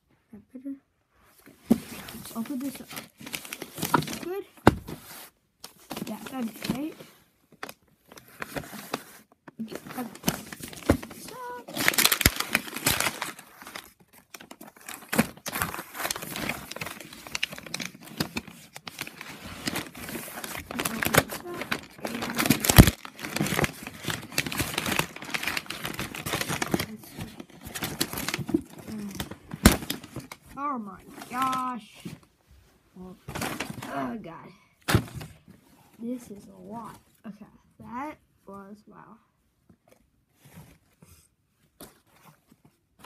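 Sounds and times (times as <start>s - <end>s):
paper tearing and crinkling: 9.8s - 30.4s.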